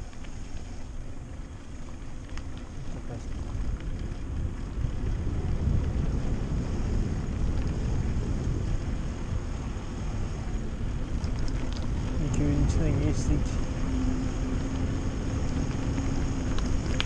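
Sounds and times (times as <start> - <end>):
bike tyres rolling on rough road: 0.0 - 17.0
wind on microphone: 3.1 - 17.0.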